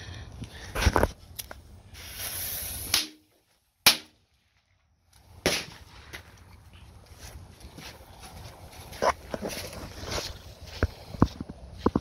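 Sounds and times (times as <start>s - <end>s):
fuse hissing: 2.0s - 3.1s.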